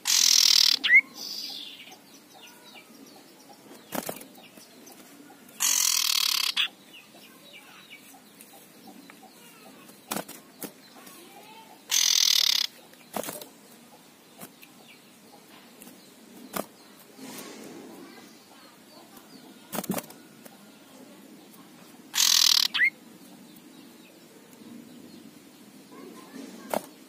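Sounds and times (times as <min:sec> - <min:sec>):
bird harsh rasping call: 0:00.0 - 0:02.8, 0:05.6 - 0:06.8, 0:11.9 - 0:12.8, 0:22.1 - 0:23.0.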